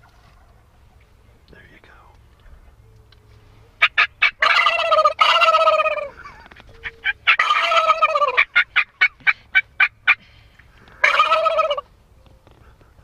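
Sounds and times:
turkey gobbling: 3.6s - 12.0s.

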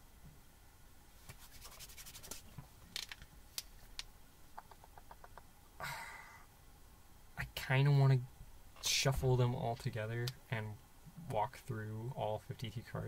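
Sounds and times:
cards rustling: 1.2s - 4.1s
small even ticks: 4.6s - 5.5s.

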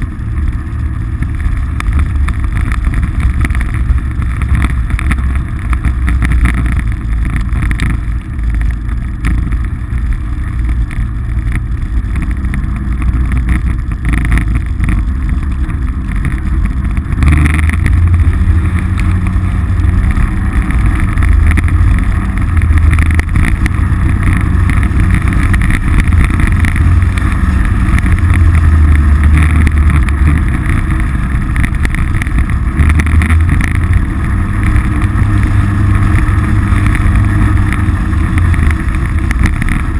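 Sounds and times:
off-road vehicle engine running: 0.0s - 39.9s
road noise: 0.0s - 39.9s.

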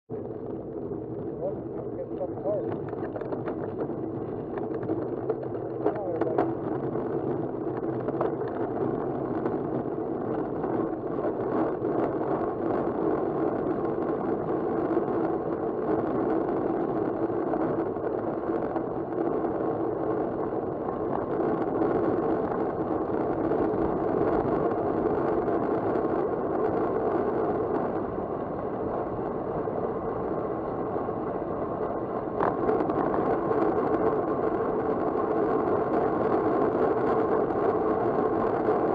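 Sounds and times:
bike tyres on asphalt: 0.1s - 38.9s
wind rushing over microphone: 0.1s - 38.9s.

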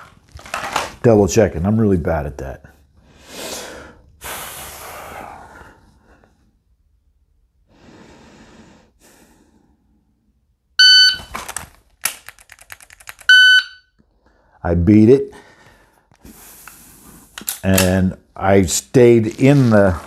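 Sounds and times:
person breathing out heavily: 3.1s - 6.1s
shot timer start beep: 10.8s - 11.3s, 13.3s - 13.8s.

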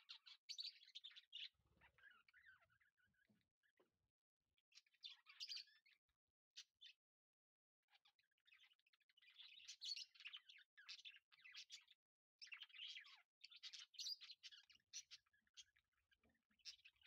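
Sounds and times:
small birds chirping: 0.0s - 7.2s, 7.8s - 17.0s.

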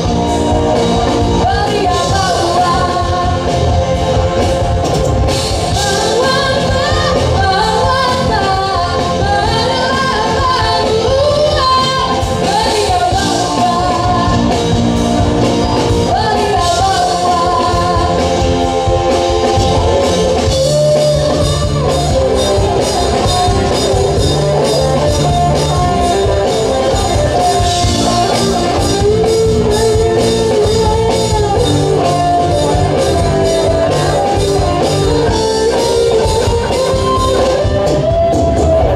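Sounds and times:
live rock band playing: 0.0s - 38.9s
person singing: 1.1s - 4.5s, 5.5s - 15.0s, 15.8s - 19.5s.

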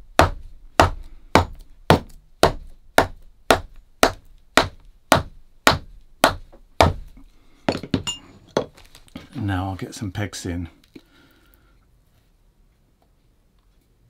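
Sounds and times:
hammer striking leather on shoe: 0.1s - 7.1s.

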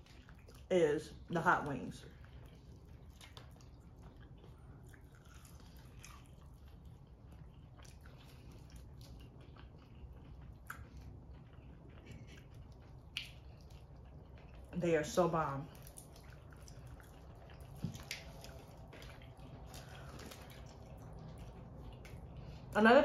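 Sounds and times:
person chewing: 0.0s - 0.7s, 2.0s - 14.8s, 15.7s - 22.7s
wet mouth clicks: 13.0s - 14.1s.

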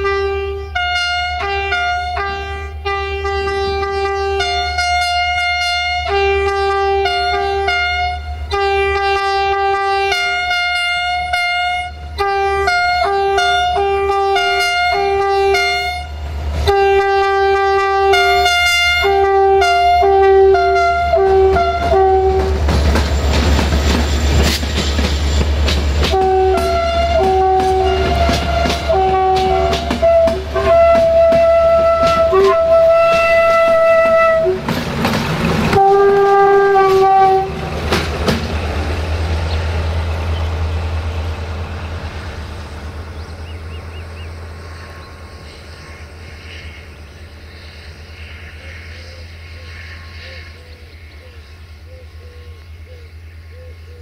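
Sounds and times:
locomotive horn blasts: 0.0s - 22.7s, 26.0s - 34.8s, 35.6s - 38.0s
train clattering over track: 12.1s - 45.5s.

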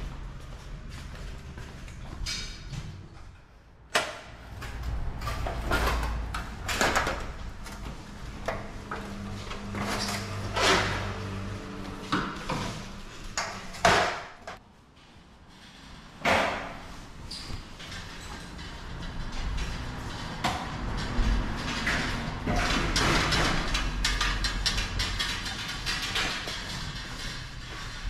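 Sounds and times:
low rolling hum: 3.1s - 13.4s
metal dolly clunking on tiles: 3.9s - 14.6s, 17.7s - 28.0s.

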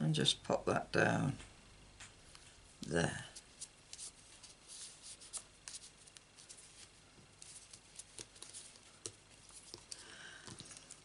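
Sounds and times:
paper rustling: 3.4s - 11.0s
fingertips tapping on card: 7.4s - 10.9s.

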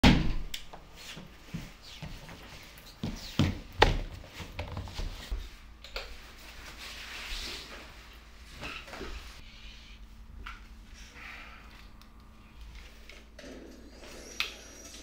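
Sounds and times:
footsteps on wooden floor: 1.2s - 5.5s.

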